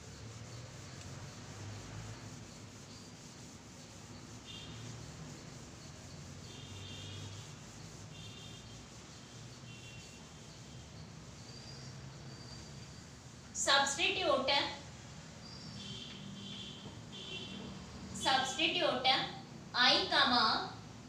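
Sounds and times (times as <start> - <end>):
duster wiping blackboard: 0.0 - 11.6.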